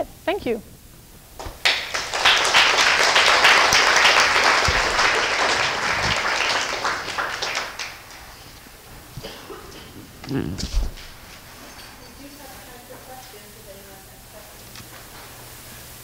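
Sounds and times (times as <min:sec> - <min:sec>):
audience applauding: 0:01.4 - 0:08.5.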